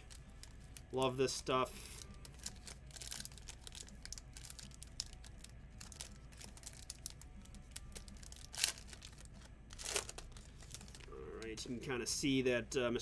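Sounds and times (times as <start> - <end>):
foil wrapper crinkling: 1.8 - 11.2.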